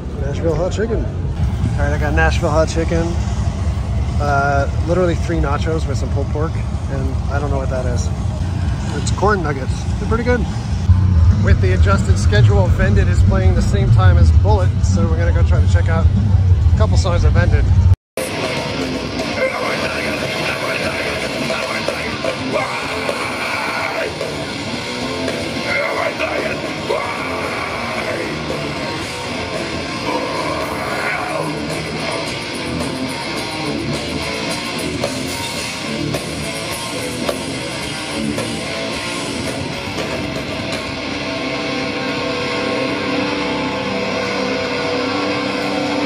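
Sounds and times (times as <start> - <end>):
heavy metal band playing: 1.3 - 46.0
electric guitars: 17.6 - 46.0.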